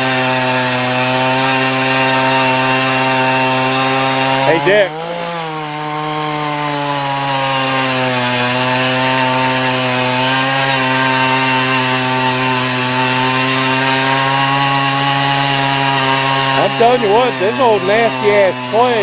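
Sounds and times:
auger engine boring into ground: 15.9s - 19.0s.

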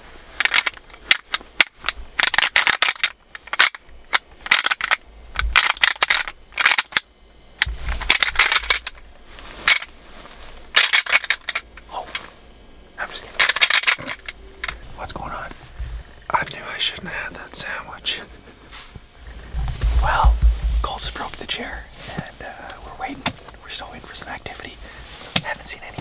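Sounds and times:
plastic rattle clattering: 0.4s - 7.0s, 7.6s - 9.0s, 10.8s - 11.7s, 13.3s - 14.8s.

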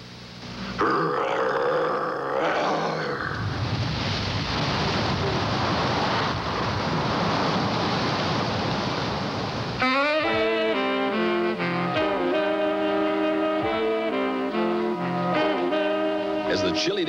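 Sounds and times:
steady rushing noise: 3.2s - 10.2s
music with brass and strings: 9.8s - 17.0s.

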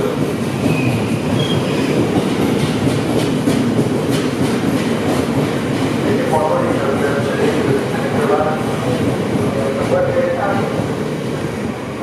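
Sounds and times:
freight train wheels rumbling: 0.0s - 12.0s.

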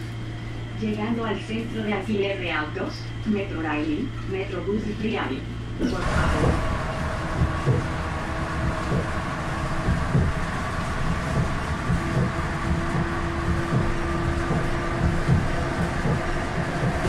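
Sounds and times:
steady whine: 0.0s - 17.0s
vehicle cabin rumble: 5.8s - 17.0s.

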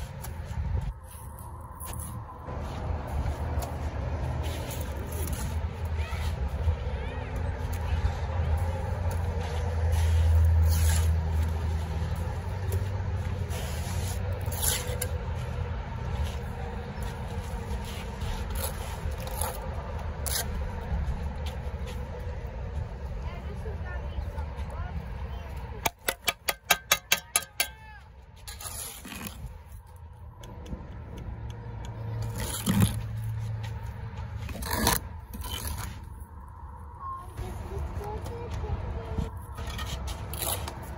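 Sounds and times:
passing vehicle rumble: 0.0s - 25.9s, 28.8s - 40.9s
trowel scraping mortar: 9.9s - 11.8s, 13.4s - 15.2s, 28.4s - 29.8s, 34.4s - 36.1s, 39.5s - 40.9s
trowel tapping concrete block: 25.8s - 27.9s.

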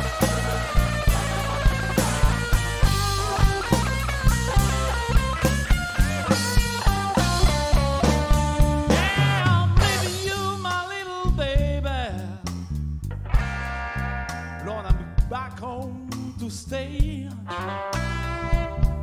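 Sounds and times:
electric guitar solo: 0.0s - 9.8s, 13.2s - 15.2s, 17.5s - 19.0s
drum kit: 0.0s - 19.0s
electric bass: 0.0s - 19.0s.

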